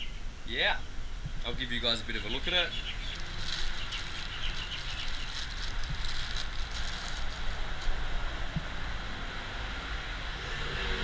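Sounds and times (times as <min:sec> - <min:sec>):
plastic bag crinkling: 0:03.0 - 0:08.1
wind on microphone: 0:03.0 - 0:09.3.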